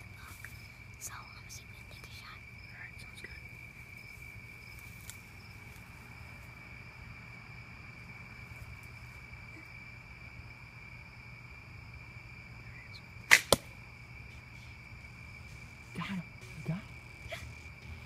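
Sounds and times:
crickets chirring: 0.0 - 18.0
bow being shot: 13.2 - 13.8
arrow hitting foam target: 13.3 - 13.7.

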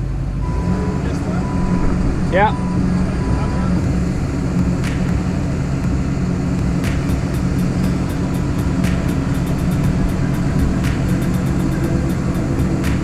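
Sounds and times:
excavator engine running: 0.0 - 13.0
sharp ticks: 3.8 - 13.0.

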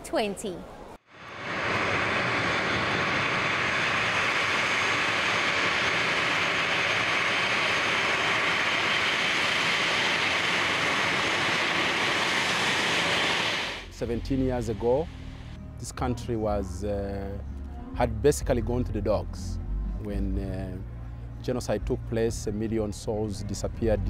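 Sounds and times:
jet engines running: 1.0 - 15.6.

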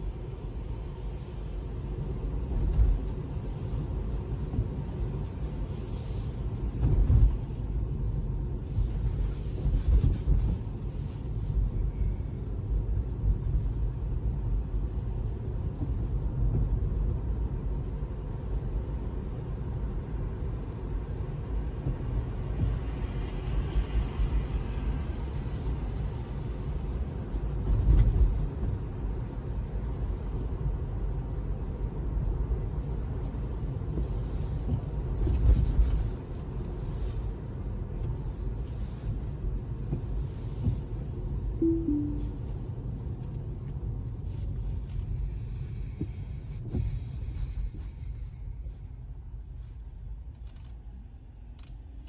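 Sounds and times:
tyre and road noise rumble: 0.0 - 41.6.

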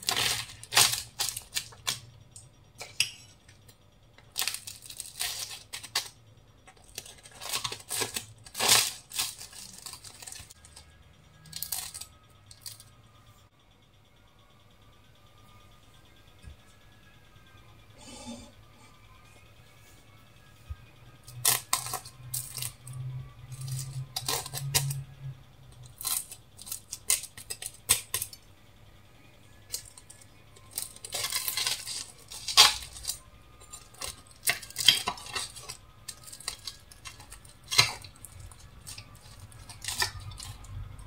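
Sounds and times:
pastry crackling: 0.0 - 13.0, 21.3 - 28.4, 29.5 - 41.0.

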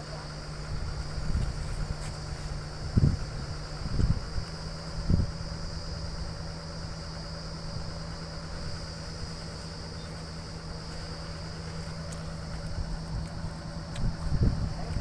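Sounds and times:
truck engine idling: 0.0 - 15.0.

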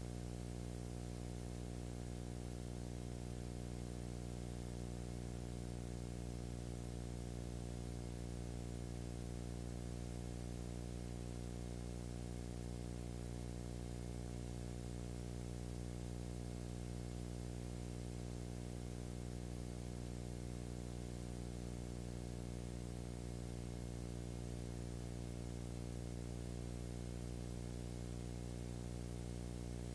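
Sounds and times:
electrical hum: 15.5 - 29.9.

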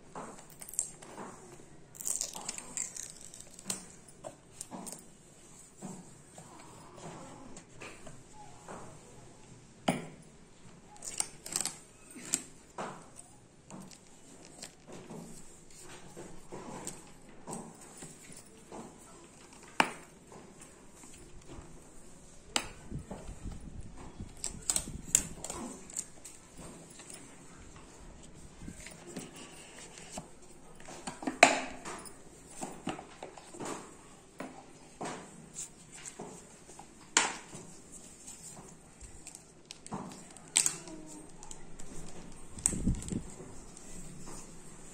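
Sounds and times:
clicks and crinkles of sticker: 10.9 - 17.2, 35.2 - 44.4.

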